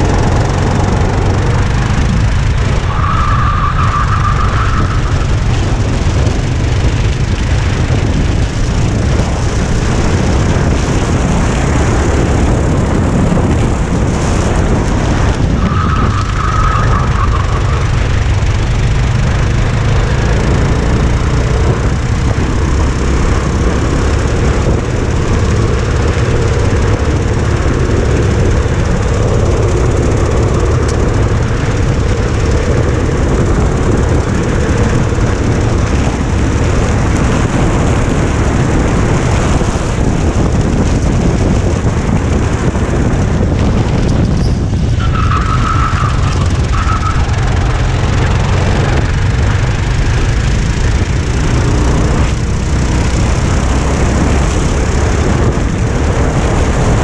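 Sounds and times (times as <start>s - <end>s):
go-kart engine running: 0.0s - 57.0s
wind rumble on microphone: 0.0s - 57.0s
tyre squeal: 2.8s - 5.4s, 15.6s - 18.0s, 44.4s - 47.4s.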